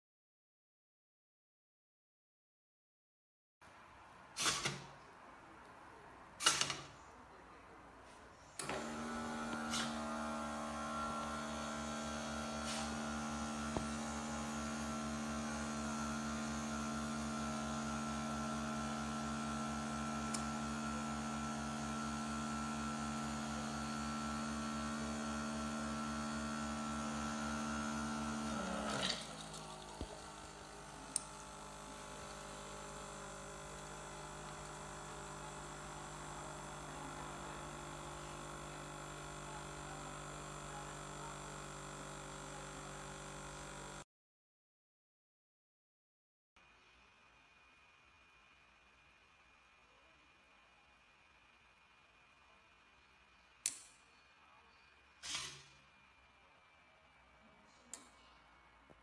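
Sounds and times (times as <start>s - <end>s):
window servos humming: 8.6s - 44.0s.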